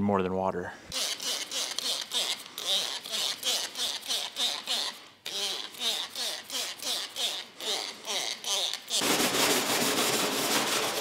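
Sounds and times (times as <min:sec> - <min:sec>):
spray bottle squirting: 0:00.9 - 0:09.0.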